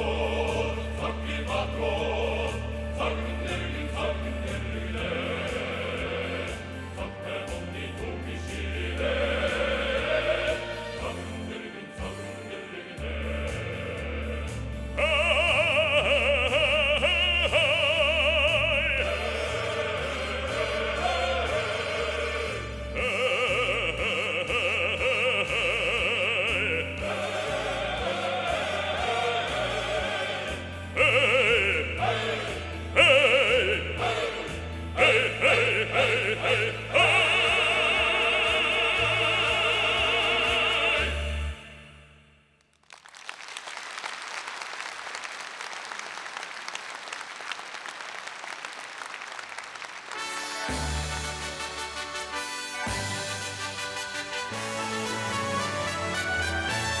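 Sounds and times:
male soloist singing: 0.0s - 41.8s
male choir singing: 0.0s - 42.1s
audience applause: 42.8s - 50.8s.

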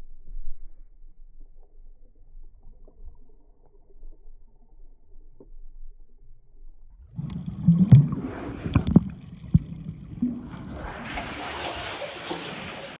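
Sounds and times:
muffled underwater rumble: 0.0s - 13.0s
sharp underwater knocks: 7.2s - 12.7s.

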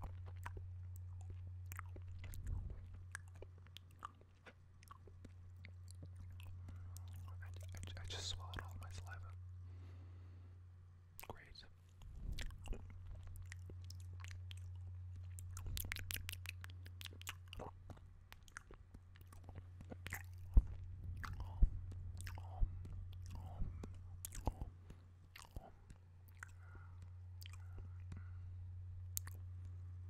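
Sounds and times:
lip and tongue clicks: 0.0s - 9.2s, 11.2s - 28.3s, 29.1s - 29.8s
low hum: 0.0s - 30.0s
mouth pops: 12.3s - 24.8s.

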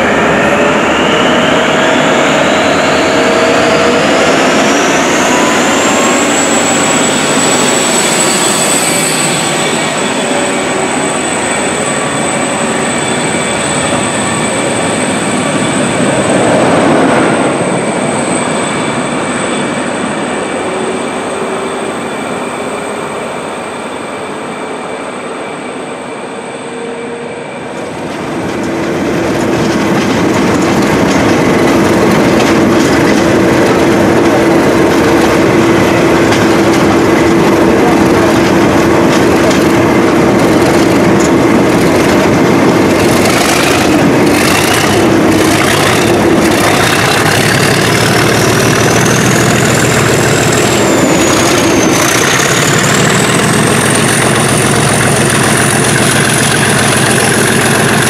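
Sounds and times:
diesel locomotive pulling out: 0.0s - 58.0s
diesel engine working hard: 28.2s - 58.0s.

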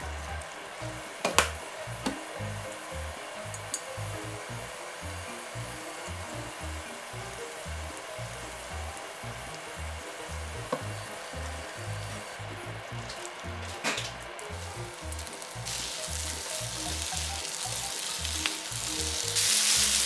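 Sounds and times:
food sizzling in frying pan: 0.0s - 20.0s.

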